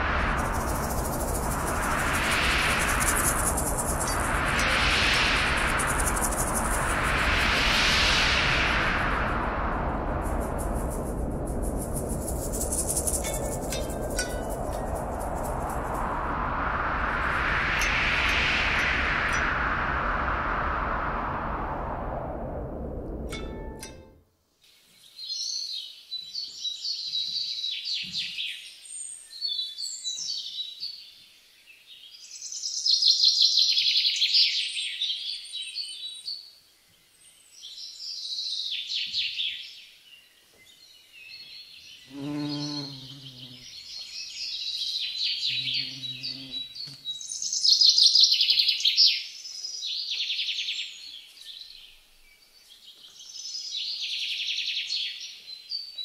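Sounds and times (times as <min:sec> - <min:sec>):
bird trilling chirps: 0:42.1 - 0:43.8, 0:45.3 - 0:47.7.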